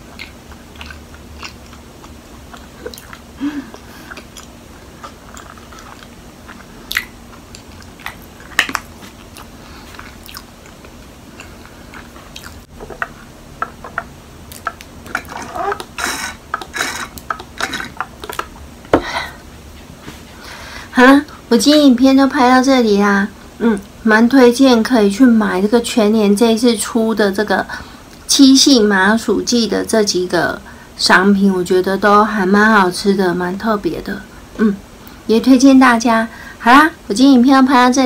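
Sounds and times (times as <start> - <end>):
mouth chewing sticky food: 0.0 - 18.7
sipping and swallowing: 0.2 - 18.5.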